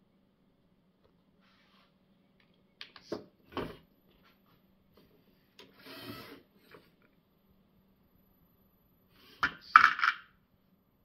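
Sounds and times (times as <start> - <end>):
toy motor gear whirr: 5.8 - 6.4
plastic bricks clicking and knocking: 9.4 - 10.3.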